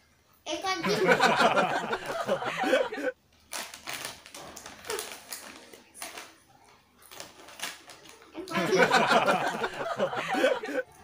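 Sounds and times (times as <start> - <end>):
plastic snack packet crinkling: 3.2 - 8.8.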